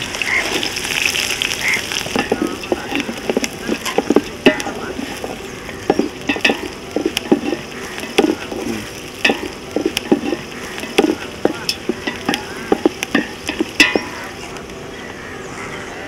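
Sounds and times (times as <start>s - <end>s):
oil sizzling: 0.0s - 14.4s
spatula knocking and scraping pot: 2.1s - 8.6s, 9.2s - 14.3s.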